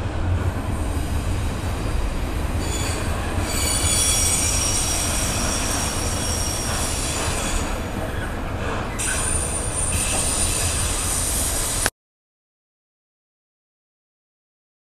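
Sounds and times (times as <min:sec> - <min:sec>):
high-pitched wheel squeal: 0:02.6 - 0:11.5.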